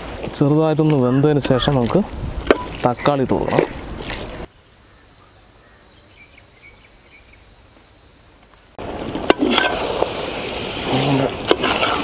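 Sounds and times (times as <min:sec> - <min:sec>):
insect chirps: 0:04.4 - 0:08.8.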